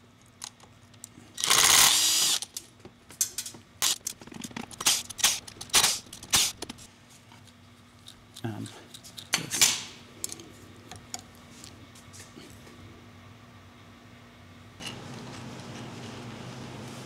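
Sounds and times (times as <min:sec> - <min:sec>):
cordless drill whirring: 0:01.4 - 0:02.4.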